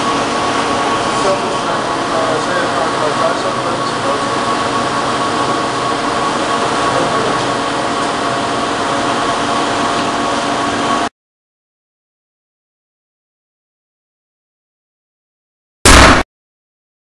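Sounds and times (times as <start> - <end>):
machinery hum with held tones: 0.0 - 11.1.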